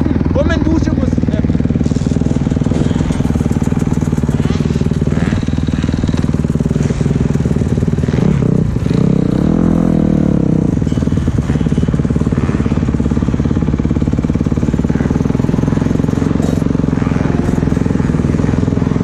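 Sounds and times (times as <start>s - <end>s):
motocross bike engine revving: 0.0s - 19.0s.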